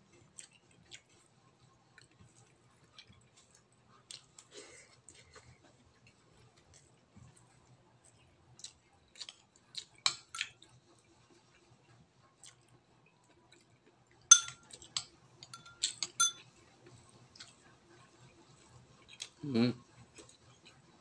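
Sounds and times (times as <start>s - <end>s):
metal spoon clinking on ceramic plate: 14.3s - 14.8s, 15.4s - 16.4s.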